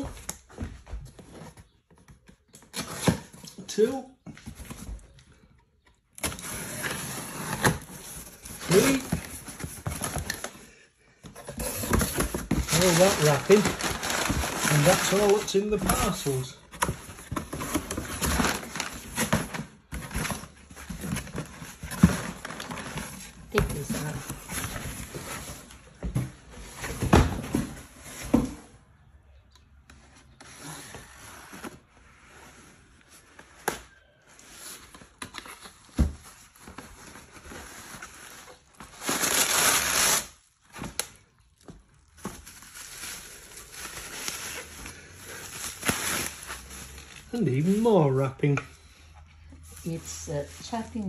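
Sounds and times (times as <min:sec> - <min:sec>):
cardboard rustling and tearing: 0:06.2 - 0:10.6, 0:11.3 - 0:25.8, 0:33.2 - 0:48.2.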